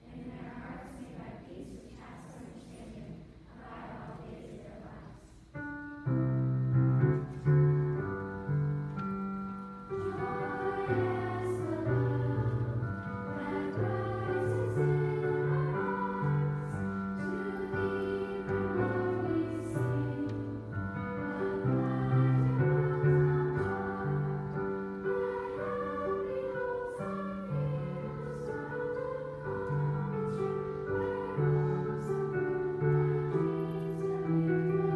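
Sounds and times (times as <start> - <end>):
girls' choir singing: 0.0 - 5.8, 7.1 - 34.9
piano accompaniment: 5.5 - 34.9.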